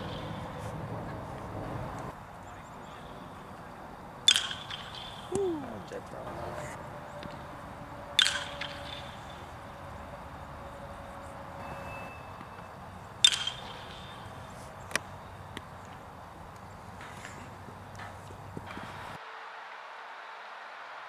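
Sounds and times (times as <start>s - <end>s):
baseball bat hitting ball: 0.0s - 0.5s, 4.2s - 10.5s, 11.8s - 15.7s.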